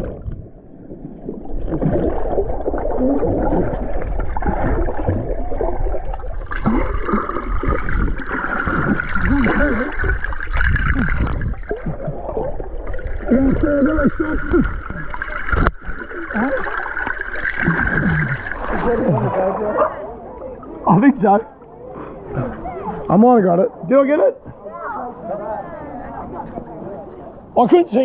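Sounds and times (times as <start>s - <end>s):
underwater bubbling and gurgling: 0.0s - 20.8s.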